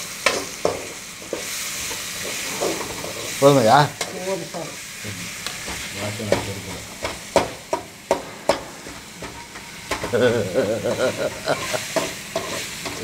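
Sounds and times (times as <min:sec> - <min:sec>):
light frying sizzle: 0:00.0 - 0:13.0
spoon scraping food in pan: 0:11.6 - 0:13.0.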